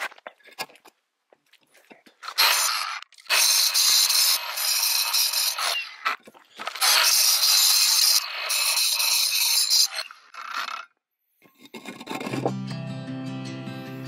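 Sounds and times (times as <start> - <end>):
abrasive grinding concrete block: 1.8 - 12.6.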